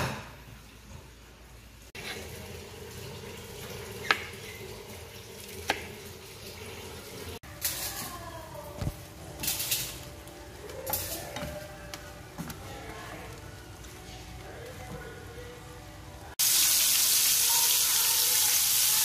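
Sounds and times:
shrimp sizzling in a pan: 16.4s - 19.0s.

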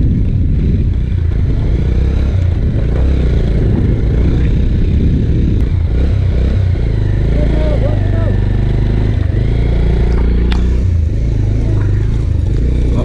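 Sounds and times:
wind noise on microphone: 0.0s - 7.6s
motorcycle engine rumbling: 0.0s - 13.0s.

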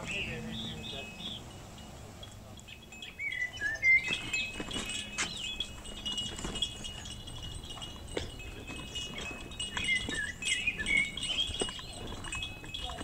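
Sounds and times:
curling high bird calls: 0.0s - 1.6s, 2.5s - 6.1s, 8.8s - 13.0s
birds chirping: 0.0s - 13.0s
steady high ringing tones: 0.0s - 13.0s.

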